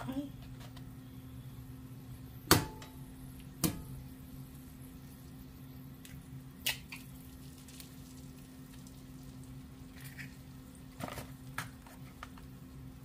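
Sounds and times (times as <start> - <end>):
low hum: 0.0 - 7.4
eggs frying in oil: 0.8 - 13.0
egg cracking: 2.5 - 12.9.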